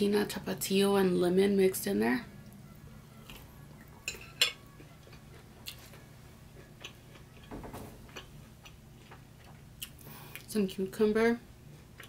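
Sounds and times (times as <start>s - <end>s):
person chewing: 3.2s - 10.5s.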